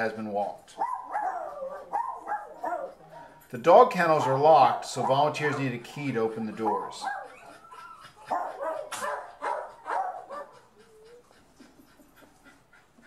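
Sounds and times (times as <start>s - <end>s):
small dogs barking: 0.7s - 3.4s, 4.2s - 10.8s
dogs yipping and whining: 0.7s - 13.0s.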